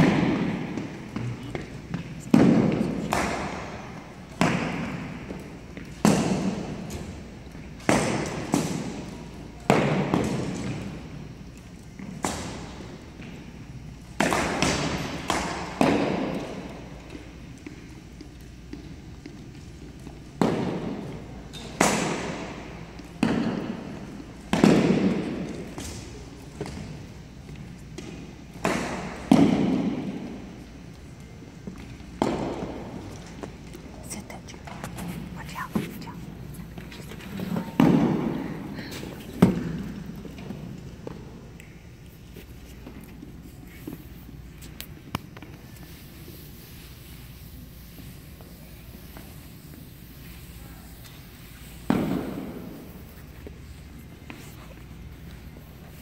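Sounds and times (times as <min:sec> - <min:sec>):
arrows thwacking with echo: 0:02.3 - 0:07.2, 0:20.4 - 0:26.9, 0:28.5 - 0:30.3, 0:51.7 - 0:53.1.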